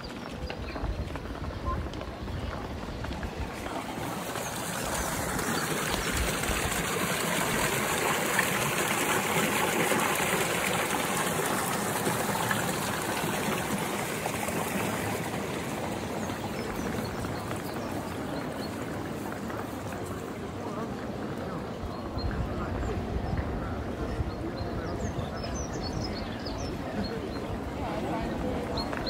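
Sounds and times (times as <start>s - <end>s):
brook trickling over stones: 0.0s - 22.2s.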